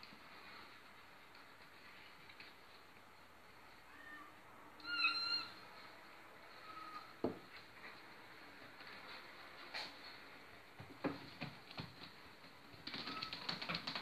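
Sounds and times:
kitten meowing: 3.9 - 5.6.

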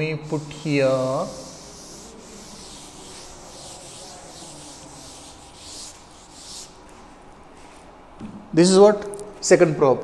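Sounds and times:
duster rubbing a blackboard: 0.2 - 7.1.

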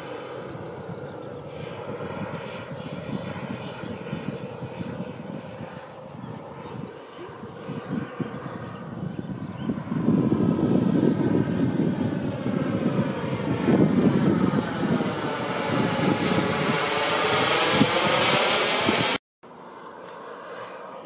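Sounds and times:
model jet hiss flying past: 14.8 - 21.0.

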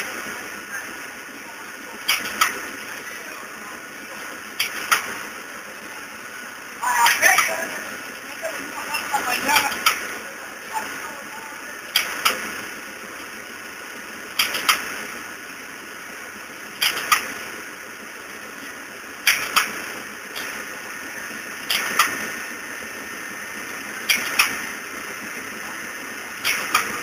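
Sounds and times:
mechanical hum: 0.0 - 27.0
machine double clack: 2.0 - 2.8, 4.6 - 5.3, 11.9 - 12.7, 14.3 - 15.2, 16.7 - 17.6, 19.2 - 20.8, 21.6 - 23.2, 23.8 - 25.4, 26.3 - 27.0.

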